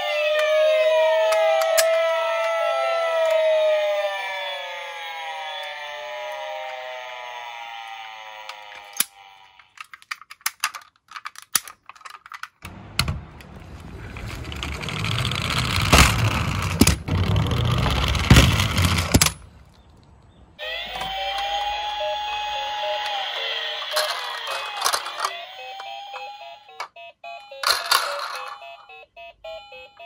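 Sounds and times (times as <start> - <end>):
toy van rolling down wooden board: 0.0 - 3.7, 5.4 - 19.4, 20.6 - 27.0, 27.6 - 28.9
toy cars clattering in a box: 9.6 - 12.6, 23.8 - 26.9, 27.6 - 28.7.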